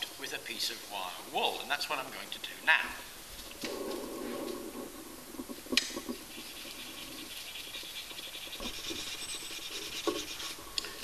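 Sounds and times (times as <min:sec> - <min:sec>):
wire wool scrubbing steel spoon: 0:06.2 - 0:10.6.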